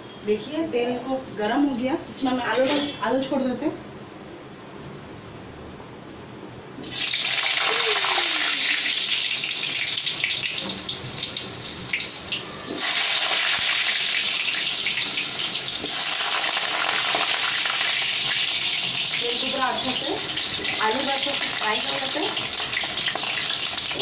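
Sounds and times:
potatoes sizzling in hot oil: 6.8s - 24.0s.

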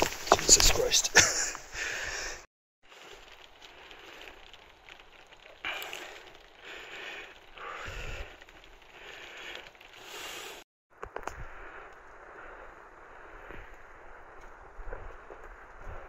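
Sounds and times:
footsteps on rocky path: 0.0s - 2.1s, 11.0s - 16.0s.

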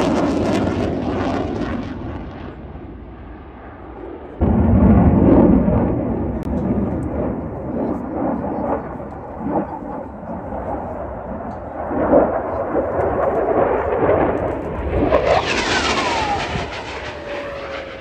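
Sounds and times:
jet engine rumbling: 0.0s - 18.0s
jet whine falling in pitch: 15.0s - 18.0s.

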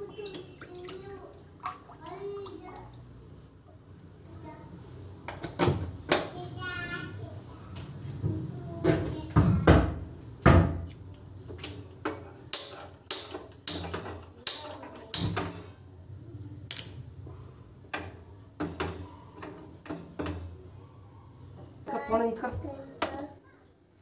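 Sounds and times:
kitchen utensils knocking and clattering: 11.6s - 15.8s, 17.9s - 20.7s.

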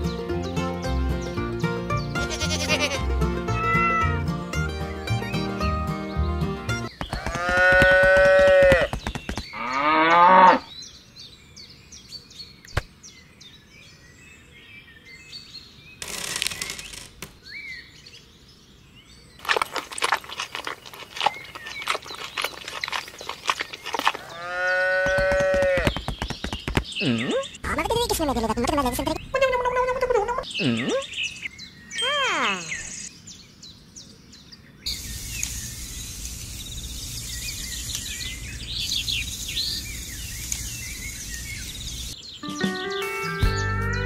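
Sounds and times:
cattle mooing: 7.2s - 8.9s, 9.6s - 10.7s, 24.2s - 25.9s.

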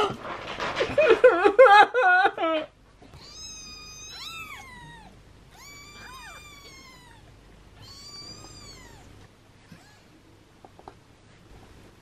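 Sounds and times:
kittens mewing: 3.1s - 10.2s.

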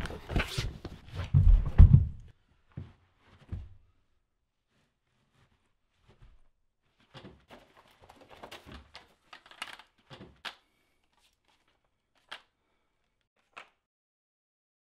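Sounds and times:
clothing rustling: 4.6s - 12.9s
crackly clicks and scrapes: 7.1s - 13.8s.

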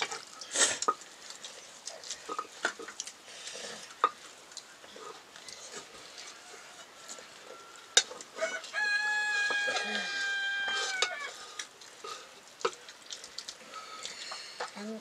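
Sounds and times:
rooster crowing: 6.2s - 11.4s.

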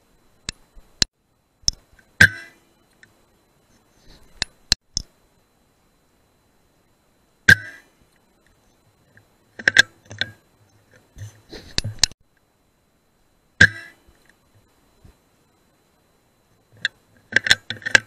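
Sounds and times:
sharp clicks and knocks: 8.4s - 12.2s, 16.8s - 18.0s.

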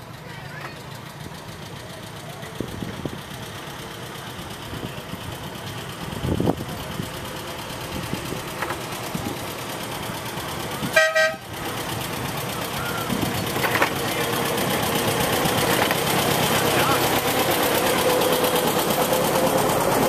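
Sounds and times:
miniature train engine running: 0.0s - 20.0s
short train horn toot: 10.9s - 11.5s.

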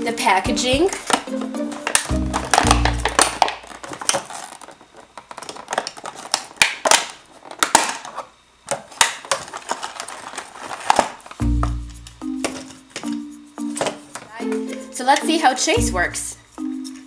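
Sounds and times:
scissors snipping plastic packaging: 0.9s - 14.4s
plastic packaging handled: 0.9s - 15.4s.

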